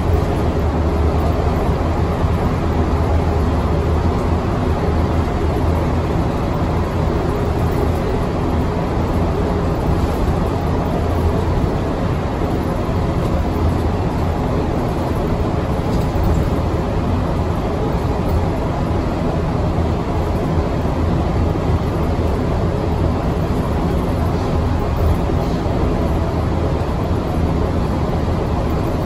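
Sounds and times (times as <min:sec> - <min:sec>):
bus engine and road noise: 0:00.0 - 0:29.0.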